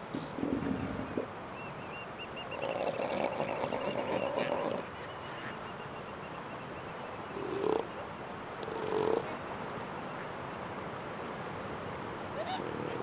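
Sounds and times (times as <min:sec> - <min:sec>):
elephant seals calling: 0:00.1 - 0:08.0.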